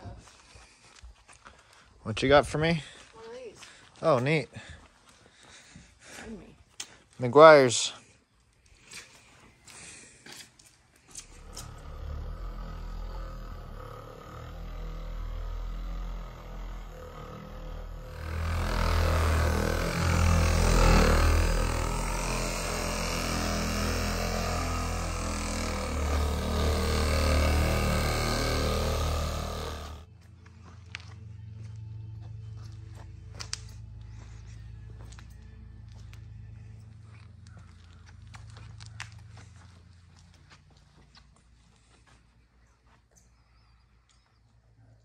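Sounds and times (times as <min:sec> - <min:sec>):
engine running steadily: 0:11.2 - 0:40.7.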